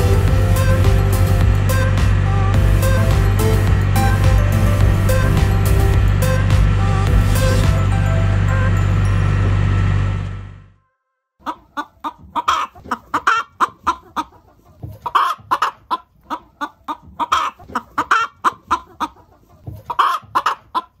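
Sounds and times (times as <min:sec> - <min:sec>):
chicken clucking: 0:11.4 - 0:21.0.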